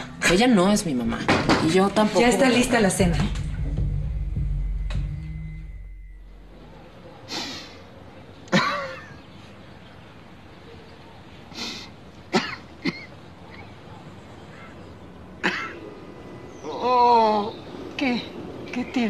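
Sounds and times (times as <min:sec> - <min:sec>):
man coughing: 0:08.5 - 0:09.2, 0:12.3 - 0:13.2, 0:15.4 - 0:15.8.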